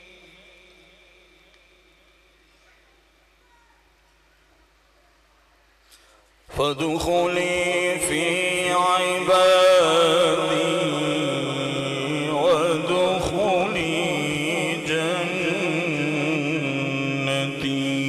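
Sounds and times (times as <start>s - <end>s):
man reciting melodically into microphone: 0.0s - 1.8s, 6.4s - 18.0s.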